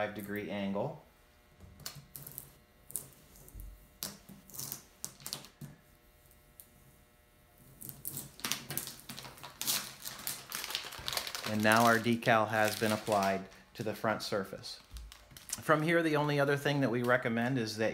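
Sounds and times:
tape peeling off crackling: 1.8s - 5.6s, 7.7s - 13.6s, 14.8s - 15.9s.

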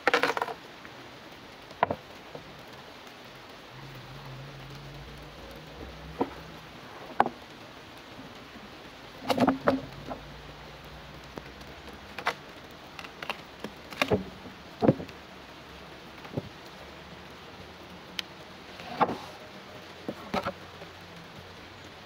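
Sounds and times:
wooden planks knocking: 5.2s - 7.4s, 9.2s - 10.3s, 13.0s - 15.2s.

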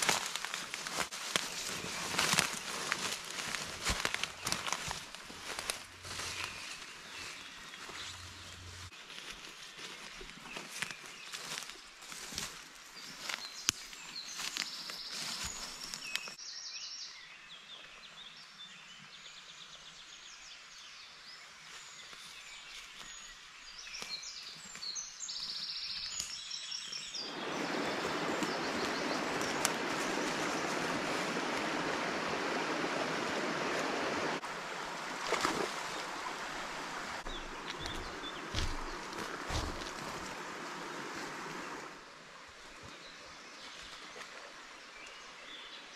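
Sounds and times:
footsteps snapping twigs: 0.0s - 6.7s, 10.2s - 16.4s, 23.9s - 26.5s, 28.4s - 30.6s, 37.2s - 40.4s
stream flowing: 0.0s - 8.9s, 27.2s - 45.9s
birds chirping: 0.0s - 42.0s.

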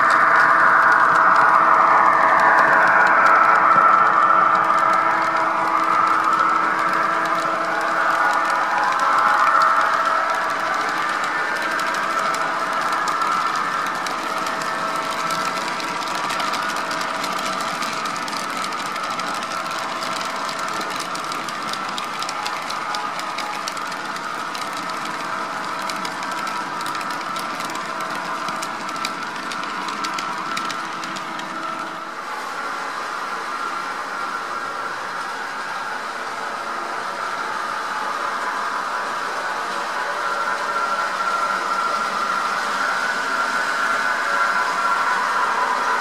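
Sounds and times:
model train wheels clicking: 0.0s - 32.4s
whining hum from train: 0.0s - 46.0s.

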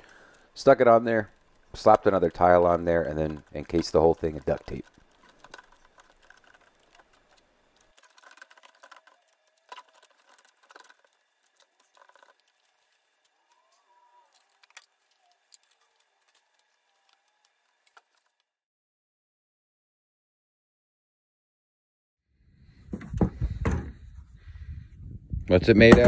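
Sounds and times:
gloved hands tapping and crinkling: 1.1s - 18.5s.

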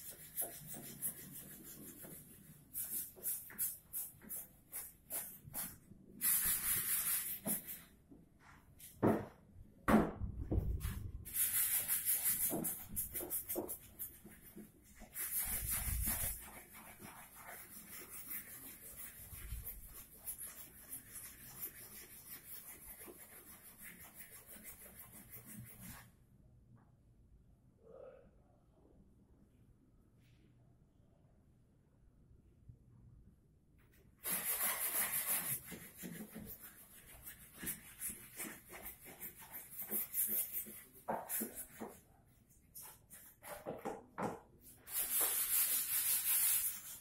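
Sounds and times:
sandpaper scratching on wood: 0.0s - 7.7s, 11.3s - 26.0s, 34.2s - 42.0s, 44.9s - 47.0s.

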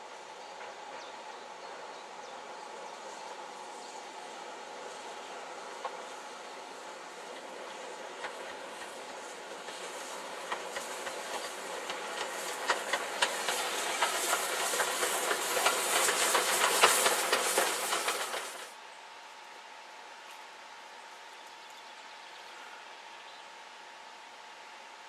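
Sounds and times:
steam locomotive hissing: 0.0s - 18.9s
train wheels clicking over rails: 0.1s - 18.8s.

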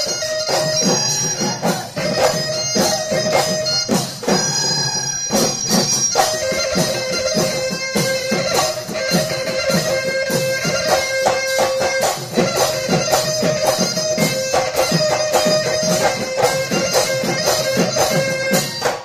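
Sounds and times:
drums beating quick rhythm: 0.0s - 19.0s
wind instrument melody: 0.0s - 19.0s.

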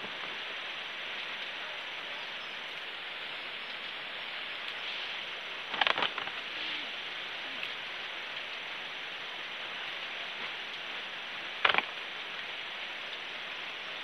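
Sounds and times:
steady hiss: 0.0s - 14.0s
sharp snaps and clicks: 5.7s - 6.4s, 11.6s - 12.1s
plants rustling: 5.7s - 6.8s.

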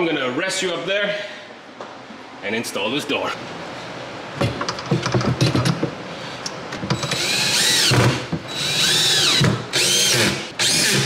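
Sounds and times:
cordless drill whining: 7.0s - 11.0s.

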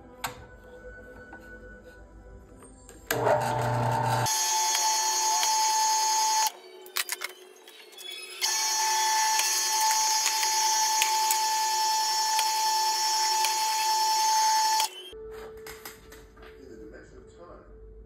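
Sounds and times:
drill press whining: 3.1s - 6.5s, 8.4s - 15.1s.

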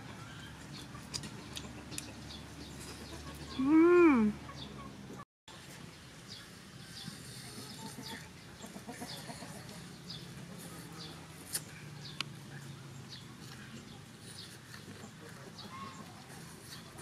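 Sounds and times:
chickens clucking: 0.5s - 3.8s, 7.0s - 11.3s, 13.6s - 17.0s.

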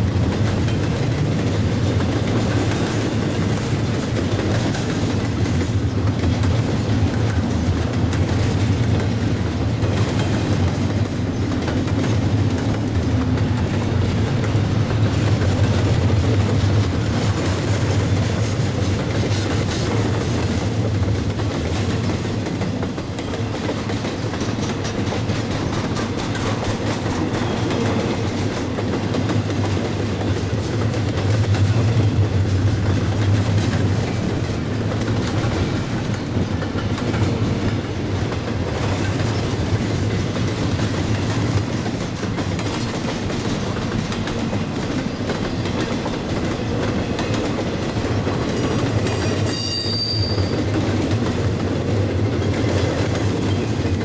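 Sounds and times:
freight train rolling past: 0.0s - 54.0s
wheels clicking over rail joints: 0.0s - 54.0s
high-pitched wheel squeal: 48.7s - 50.6s.

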